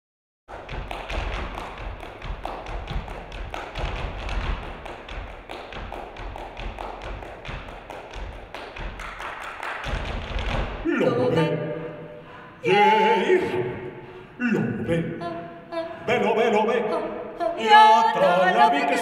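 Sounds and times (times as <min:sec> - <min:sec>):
hands clapping in rhythm: 0:00.5 - 0:10.9.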